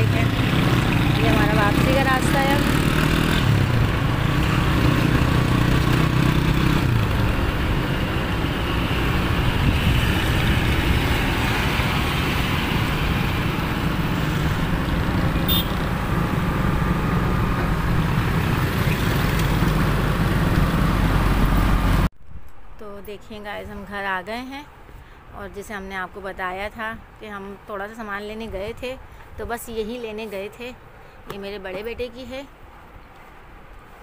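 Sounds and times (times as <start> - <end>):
surrounding traffic: 0.0 - 34.0
vehicle road and engine noise: 0.0 - 34.0.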